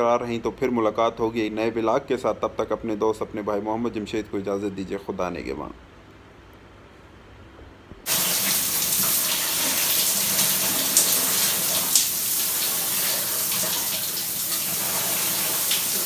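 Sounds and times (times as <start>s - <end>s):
shower water spraying: 8.1s - 16.0s.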